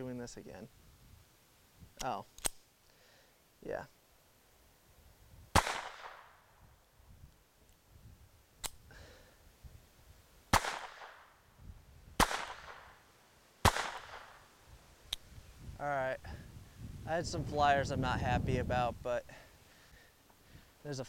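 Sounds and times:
faint gunshot crack: 0:05.6 - 0:06.4, 0:10.5 - 0:11.3, 0:12.2 - 0:13.0, 0:13.6 - 0:14.4
pistol shots with echo: 0:05.6 - 0:06.4, 0:10.5 - 0:11.2, 0:12.2 - 0:13.0, 0:13.6 - 0:14.4.

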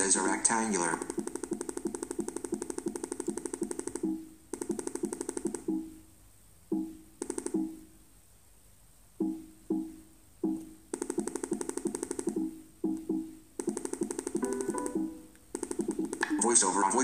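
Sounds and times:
short hollow computer beeps: 0:14.4 - 0:16.5.

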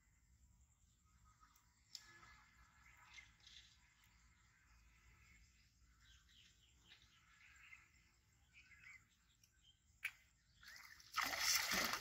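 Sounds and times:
faint bird chirps: 0:00.0 - 0:11.6
pond water splash: 0:10.0 - 0:12.0.

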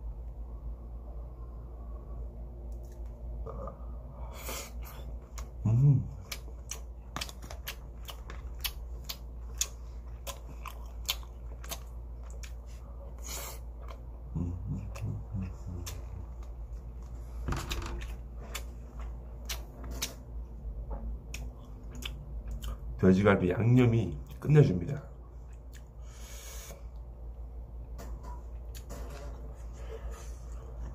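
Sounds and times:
steady low hum: 0:00.0 - 0:30.9
chewing and mouth clicks: 0:04.9 - 0:14.1, 0:14.8 - 0:17.2, 0:18.0 - 0:20.2, 0:21.3 - 0:22.9, 0:25.4 - 0:26.0.

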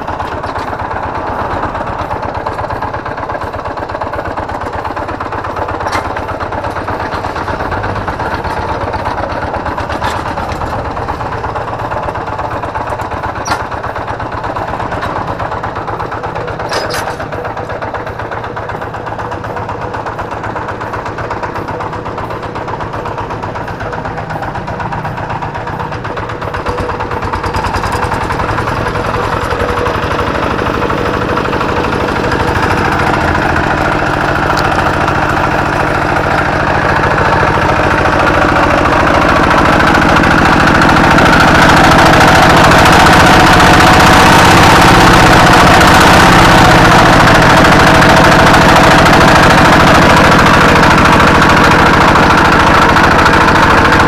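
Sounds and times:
diesel engine clattering: 0:00.0 - 0:54.0.

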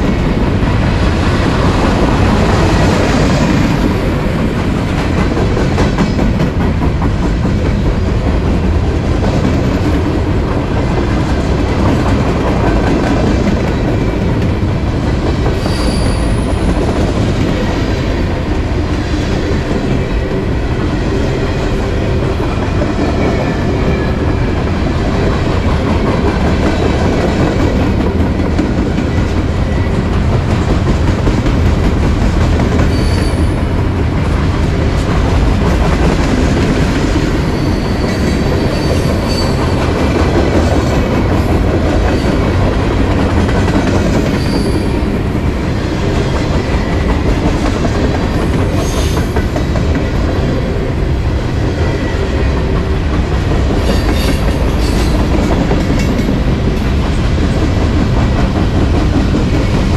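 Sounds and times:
train wheels rumbling on rails: 0:00.0 - 0:59.9
high wheel squeals: 0:15.6 - 0:16.7, 0:32.9 - 0:33.7, 0:37.5 - 0:39.7, 0:44.4 - 0:45.0.

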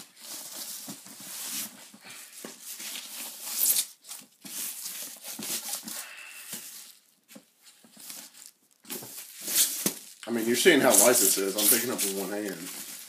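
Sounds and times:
plastic bag rustling: 0:00.0 - 0:13.0.

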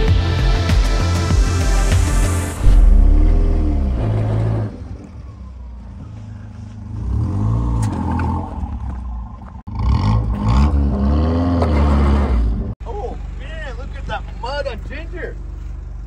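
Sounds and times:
car engine revving: 0:02.3 - 0:05.3.

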